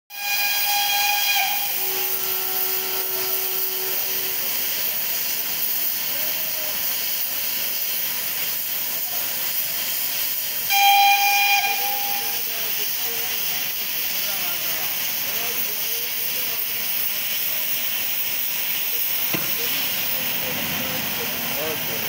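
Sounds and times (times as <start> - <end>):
steam whistle: 0.1 - 5.3, 10.6 - 12.8
steam locomotive hissing: 0.1 - 22.0.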